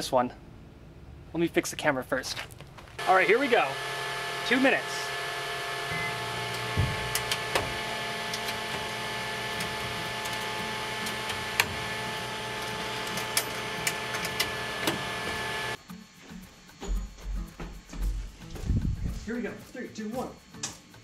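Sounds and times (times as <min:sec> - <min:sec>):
microwave oven humming: 0:03.0 - 0:15.8.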